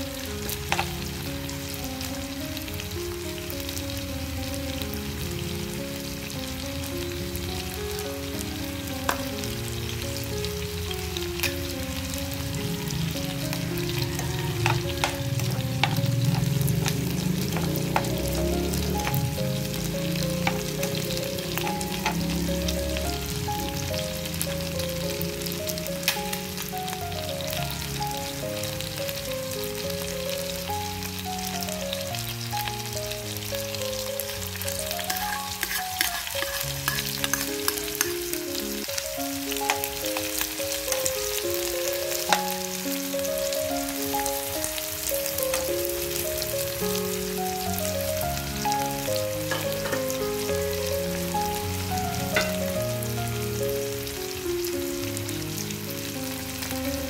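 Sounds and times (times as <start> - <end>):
background music: 0.0 - 57.0
garlic and chicken sizzling in oil: 0.0 - 57.0
spoon stirring in wok: 35.1 - 38.2.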